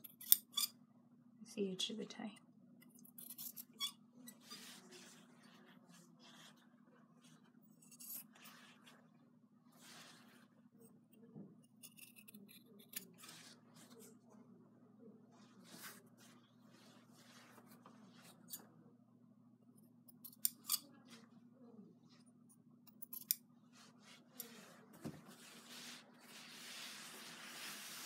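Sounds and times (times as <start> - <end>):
cloth rustling: 4.3 - 9.1, 9.7 - 10.7, 15.4 - 18.5, 23.7 - 28.0
scissors snipping fabric: 11.7 - 13.3, 22.9 - 23.4.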